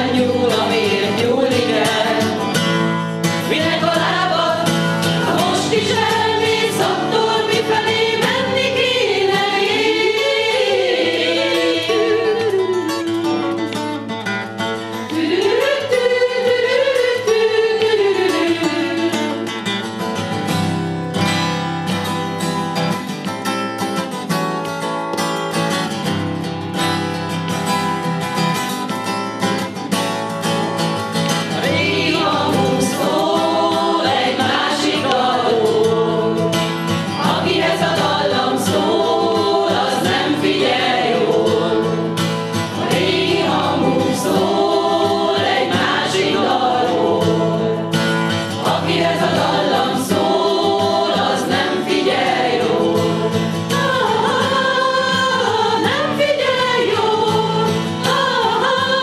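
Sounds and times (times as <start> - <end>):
choir singing: 0.0 - 13.6, 15.0 - 19.8, 31.4 - 59.0
acoustic guitar strumming: 0.0 - 59.0.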